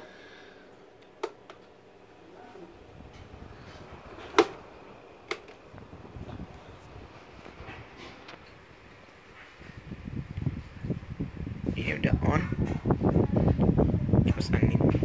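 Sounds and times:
fan air rumble: 0:00.0 - 0:15.0
fan push button clicks: 0:01.0 - 0:01.7, 0:04.2 - 0:04.6, 0:05.2 - 0:05.6.

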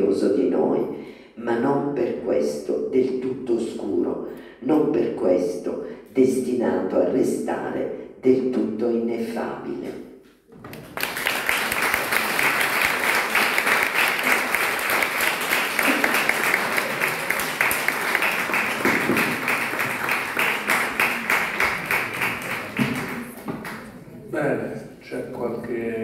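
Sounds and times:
audience clapping: 0:10.6 - 0:24.0.

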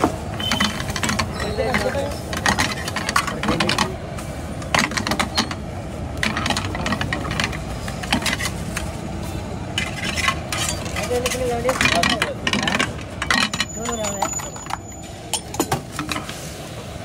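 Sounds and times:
spatula scraping and clattering on pan: 0:06.2 - 0:08.9, 0:09.7 - 0:14.6.

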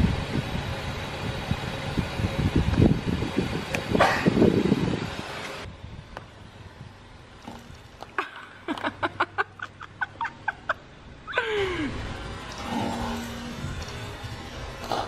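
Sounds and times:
person laughing: 0:08.2 - 0:12.1.

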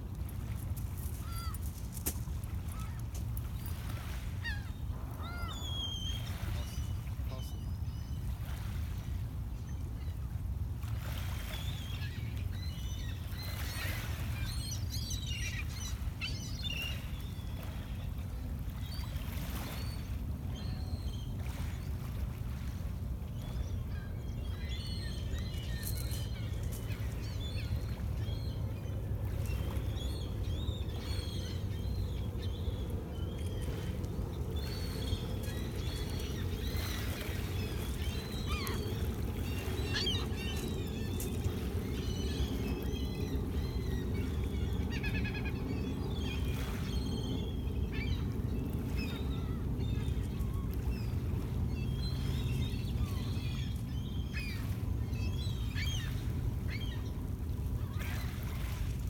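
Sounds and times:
waves lapping on pebbles: 0:00.0 - 0:04.2.

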